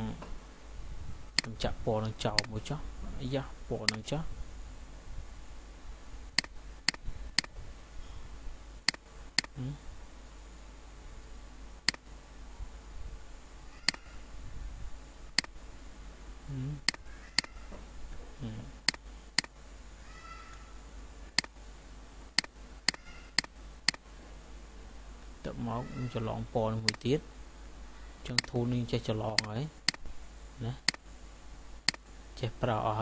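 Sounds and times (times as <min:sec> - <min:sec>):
steady low hum: 0:00.0 - 0:33.0
mouse button clicking: 0:13.8 - 0:14.1.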